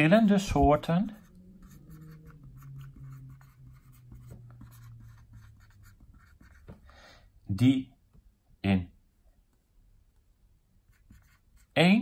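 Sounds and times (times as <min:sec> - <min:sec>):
marker writing on whiteboard: 0:00.0 - 0:06.9, 0:10.8 - 0:12.0
faint low hum: 0:00.0 - 0:12.0.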